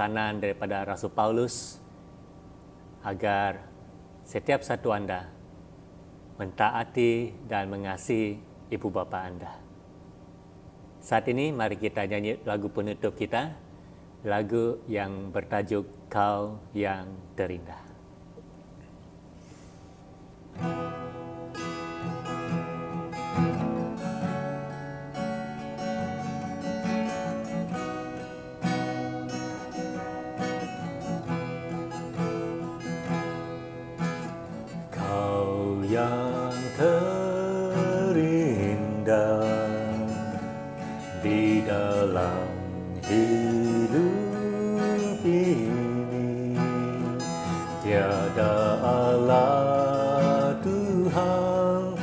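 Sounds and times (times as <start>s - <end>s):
acoustic guitar: 18.4s - 52.0s
man singing: 35.0s - 52.0s.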